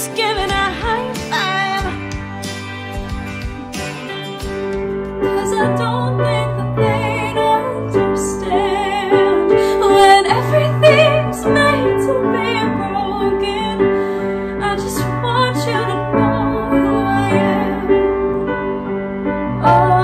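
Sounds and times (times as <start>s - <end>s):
woman singing with vibrato: 0.0s - 2.0s, 5.4s - 14.0s, 14.6s - 18.1s, 19.6s - 20.0s
piano chords: 0.0s - 20.0s.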